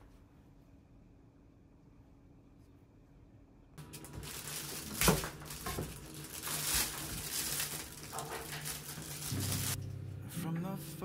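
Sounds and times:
rustling and splashing at sink: 0:03.8 - 0:09.8.

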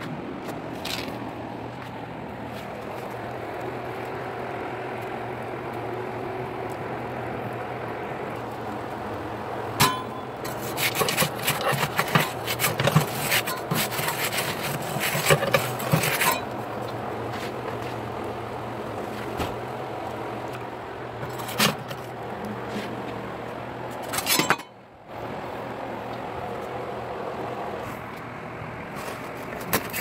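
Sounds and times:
oven low hum: 0:00.0 - 0:30.0
scraping and crackling: 0:08.3 - 0:18.4, 0:19.0 - 0:23.2, 0:23.9 - 0:24.7, 0:28.9 - 0:30.0.

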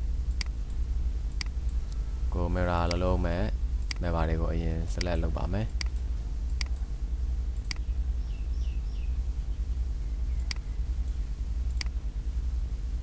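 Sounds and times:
low electrical hum: 0:00.0 - 0:13.0
computer mouse clicking: 0:05.0 - 0:06.8, 0:07.6 - 0:07.9, 0:10.4 - 0:12.0
faint high chirps: 0:07.6 - 0:12.0.

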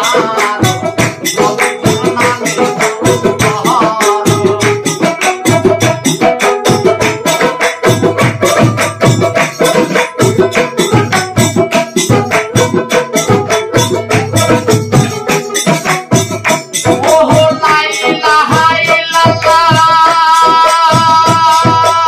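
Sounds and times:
plucked lute: 0:00.0 - 0:17.3
frame drum with jingles: 0:00.0 - 0:22.0
person singing: 0:00.0 - 0:22.0.

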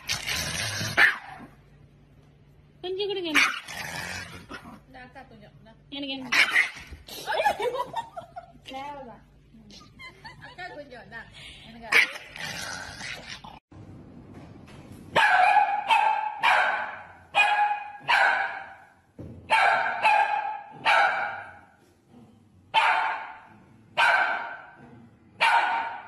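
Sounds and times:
small dog barking: 0:01.0 - 0:01.5, 0:15.2 - 0:18.8, 0:19.5 - 0:21.6, 0:22.8 - 0:23.4, 0:24.0 - 0:24.8, 0:25.4 - 0:26.0.

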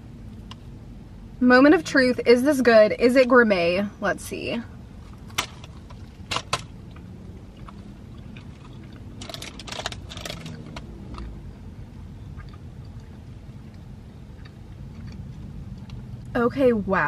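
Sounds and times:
low steady hum: 0:00.0 - 0:17.0
crunching biscuit sandwich: 0:05.0 - 0:11.3.

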